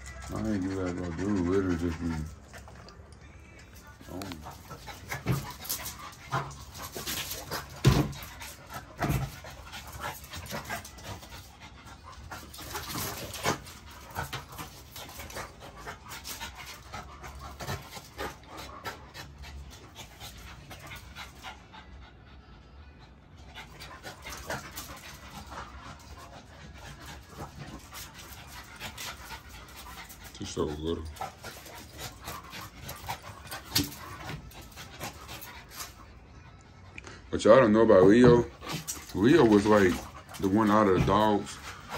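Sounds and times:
dogs panting: 0.0s - 41.9s
paws scuffling on concrete: 38.0s - 41.9s.

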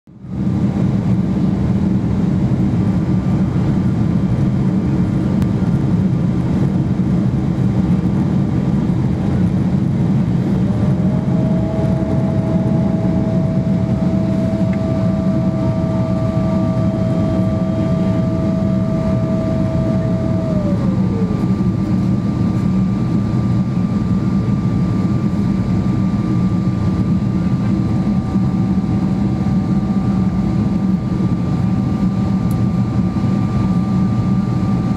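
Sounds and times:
airflow and engine roar: 0.1s - 34.9s
thin whine: 9.3s - 34.9s
high steady tone: 10.5s - 21.9s.

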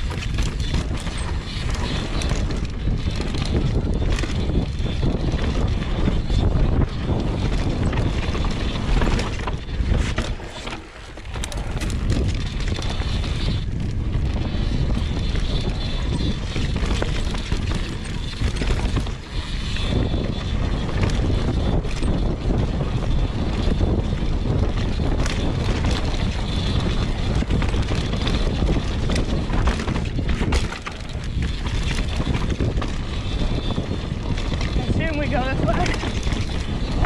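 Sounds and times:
bike tyres rolling on dirt: 0.0s - 37.0s
wind on microphone: 0.0s - 37.0s
bike clattering over rocks: 14.2s - 34.9s.

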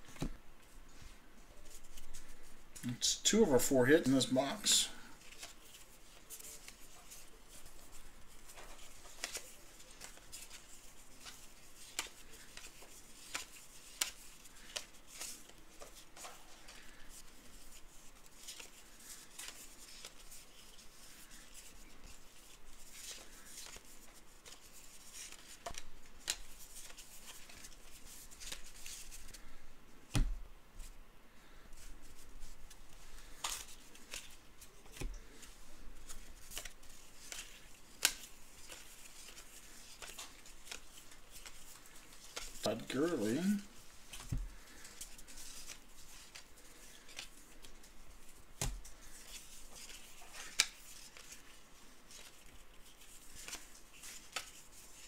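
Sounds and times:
trading cards flipping: 8.4s - 17.1s, 33.2s - 47.8s, 48.6s - 54.8s.

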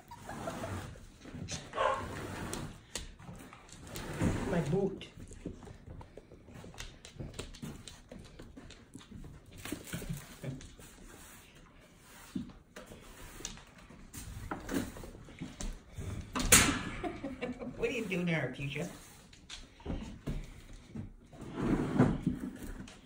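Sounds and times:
puppies scuffling and knocking: 0.0s - 11.0s
paws tapping on wooden floor: 5.0s - 10.8s.

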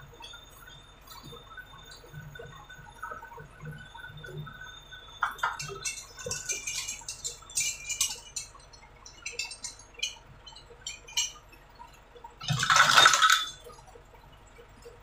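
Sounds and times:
metal chain clinking and rattling: 5.2s - 11.4s, 12.4s - 13.7s.

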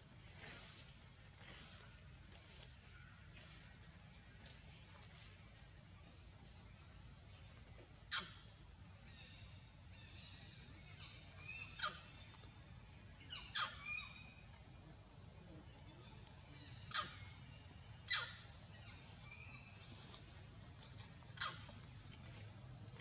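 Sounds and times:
sharp bird calls: 11.0s - 12.5s, 13.2s - 14.4s, 16.5s - 19.0s, 21.3s - 21.9s.

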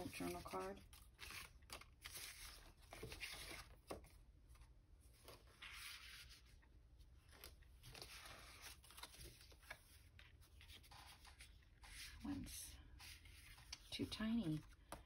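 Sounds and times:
paper and card rustling: 0.0s - 15.0s.

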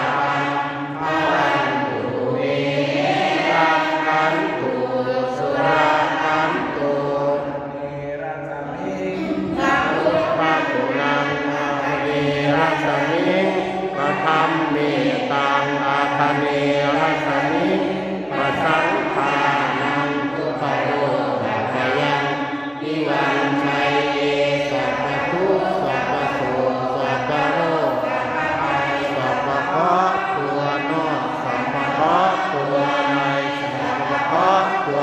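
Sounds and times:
group chanting prayers in unison: 0.0s - 35.0s
man chanting into a microphone: 3.5s - 22.4s, 23.0s - 35.0s.

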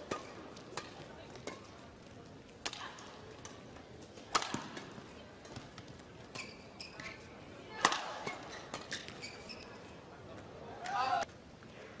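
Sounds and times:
rackets hitting shuttlecock: 0.0s - 1.8s, 2.6s - 9.2s.

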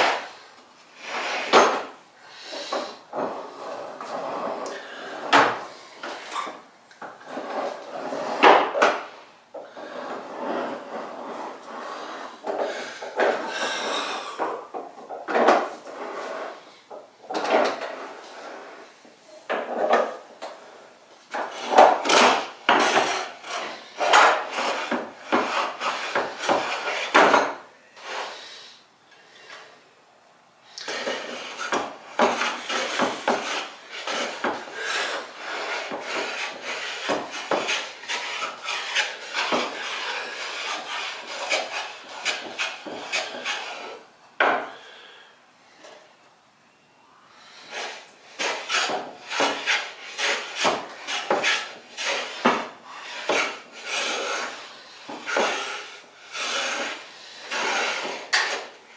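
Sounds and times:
hand plane strokes on wood: 21.3s - 28.4s, 30.8s - 44.0s, 47.5s - 58.8s.

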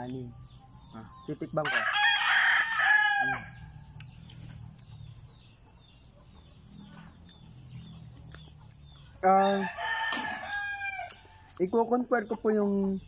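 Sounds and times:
roosters clucking: 0.0s - 13.0s
roosters crowing: 1.5s - 4.0s, 9.0s - 11.6s.

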